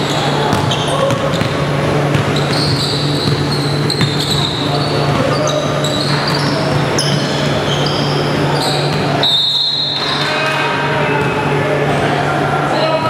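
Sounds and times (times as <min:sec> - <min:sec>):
sneakers squeaking on hardwood: 0:00.0 - 0:10.4
basketball bouncing: 0:00.5 - 0:07.4
whistle blast: 0:09.2 - 0:10.1.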